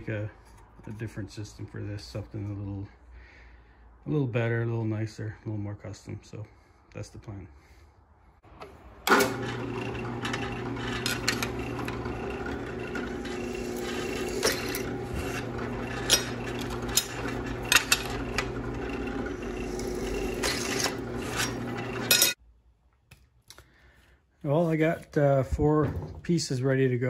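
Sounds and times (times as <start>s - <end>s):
drill press motor hum: 8.6s - 22.4s
drill bit rasping in metal: 9.3s - 22.4s.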